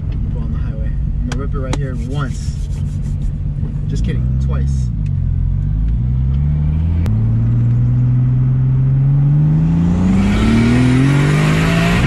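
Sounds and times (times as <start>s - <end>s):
car engine accelerating: 3.3s - 12.0s.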